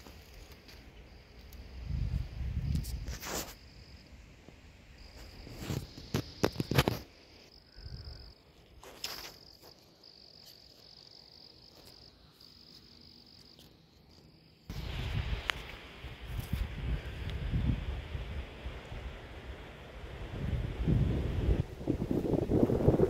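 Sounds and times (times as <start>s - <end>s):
wind noise on microphone: 1.6s - 3.6s, 14.7s - 23.0s
insect trilling: 5.0s - 14.7s.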